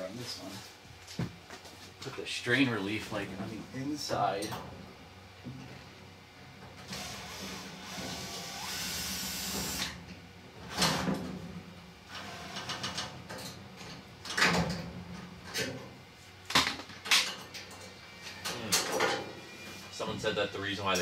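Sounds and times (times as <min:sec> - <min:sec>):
dryer parts knocking and clanking: 0:12.6 - 0:19.3.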